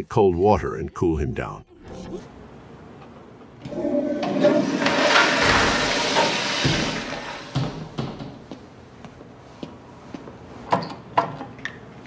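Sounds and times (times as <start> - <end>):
toilet flushing: 3.6 - 8.4.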